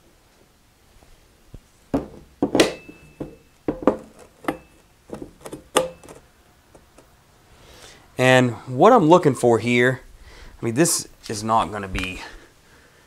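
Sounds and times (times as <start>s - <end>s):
metal clacks and knocks: 2.0s - 6.2s.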